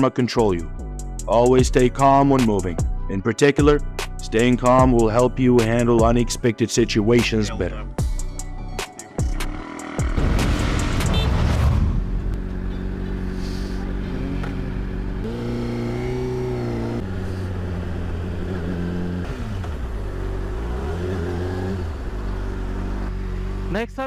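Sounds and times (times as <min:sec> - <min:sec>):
motorcycle engine running: 0:09.2 - 0:10.5, 0:12.1 - 0:24.0.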